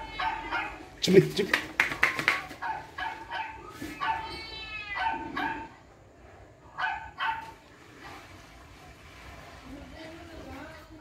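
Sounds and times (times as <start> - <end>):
dog barking and yipping: 0.0 - 1.0, 2.3 - 5.8, 6.8 - 7.6.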